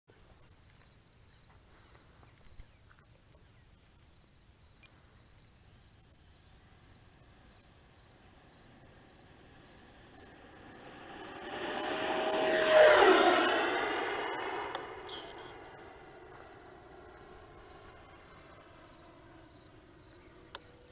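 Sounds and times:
high insect trill: 0:04.0 - 0:20.9
electric jet fan whine passing: 0:06.5 - 0:20.9.

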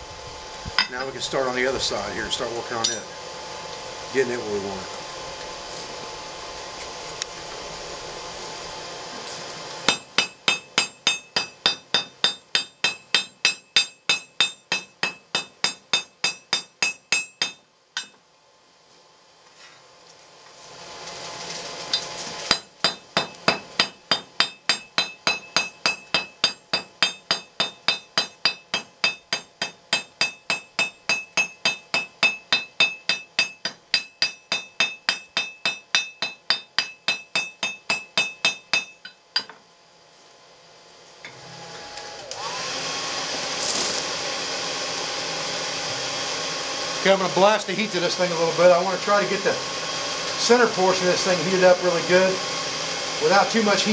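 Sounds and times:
forge blower rushing: 0:00.0 - 0:13.1, 0:20.5 - 0:30.8, 0:40.9 - 0:53.9
hammer striking steel on anvil: 0:02.8 - 0:03.1, 0:09.9 - 0:18.2, 0:21.9 - 0:39.6.

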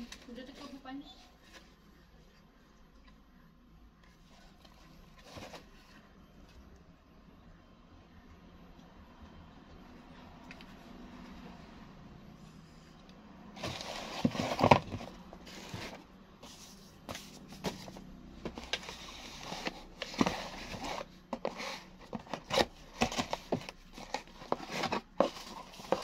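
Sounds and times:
plastic wrap rustling and crinkling: 0:13.6 - 0:16.1, 0:17.0 - 0:26.0.

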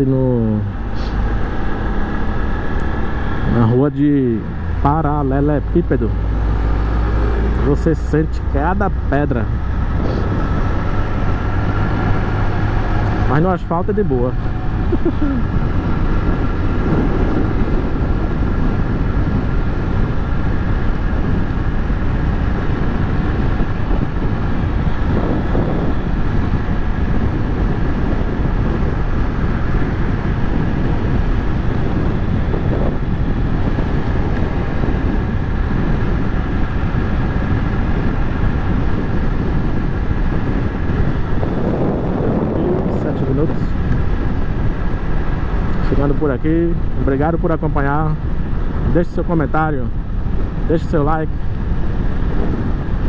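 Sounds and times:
motorcycle engine running: 0:00.0 - 0:53.0
wind over microphone: 0:00.0 - 0:53.0.

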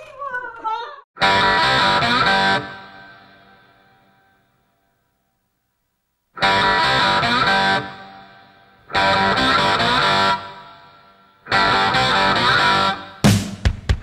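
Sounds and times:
distorted electric guitar stabs: 0:01.2 - 0:04.3, 0:06.4 - 0:14.0.

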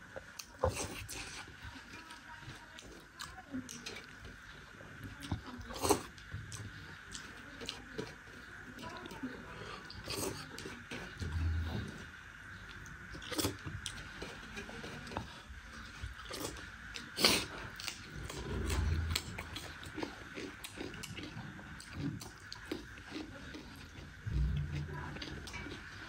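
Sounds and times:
wet chewing: 0:00.1 - 0:26.0.

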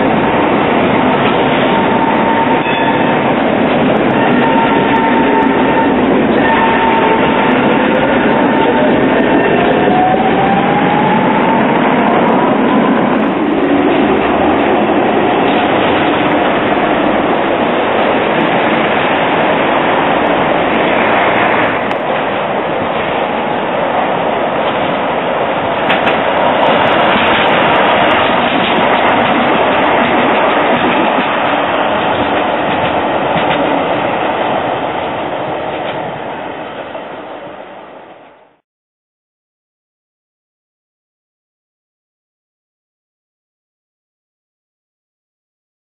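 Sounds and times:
tram motor whine: 0:00.0 - 0:23.6
steel wheels rumbling on rails: 0:00.0 - 0:38.5
tram running by: 0:00.0 - 0:38.6.

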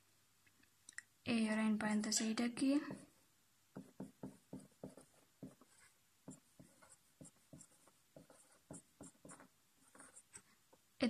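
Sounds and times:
marker writing on whiteboard: 0:02.1 - 0:10.5.

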